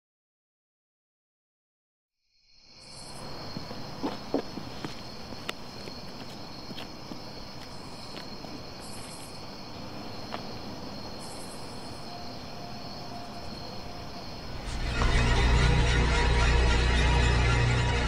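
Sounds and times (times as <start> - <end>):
crickets chirping: 2.2 - 18.0
low rumble: 14.4 - 18.0.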